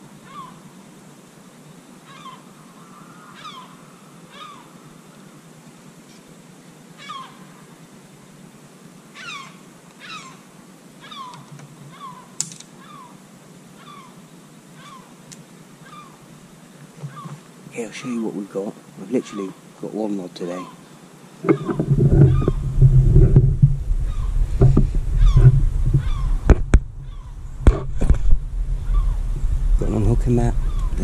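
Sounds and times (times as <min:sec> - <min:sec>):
animal mewing calls: 0:02.1 - 0:04.8, 0:07.0 - 0:07.6, 0:09.2 - 0:10.4, 0:11.0 - 0:13.2, 0:13.8 - 0:14.2, 0:14.8 - 0:15.2, 0:15.8 - 0:16.2, 0:17.0 - 0:17.5, 0:19.0 - 0:19.6, 0:20.4 - 0:23.4, 0:24.0 - 0:27.8.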